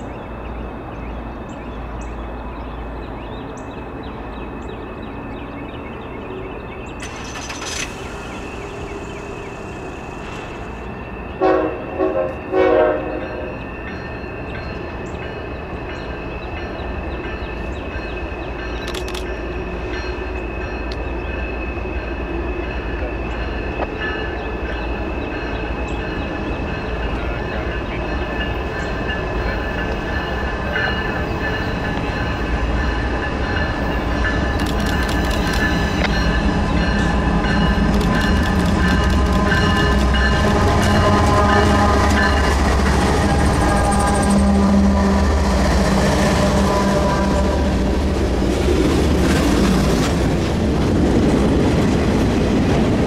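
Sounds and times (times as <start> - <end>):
freight train rumble: 0.0 - 53.0
high ringing: 8.5 - 48.1.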